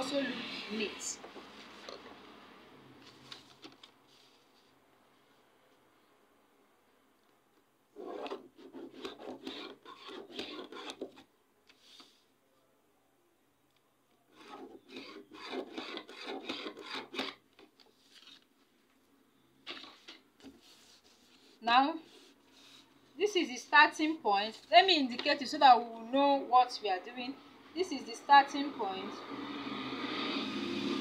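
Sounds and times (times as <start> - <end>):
pen scratching on paper: 8.0 - 11.2, 14.3 - 17.4.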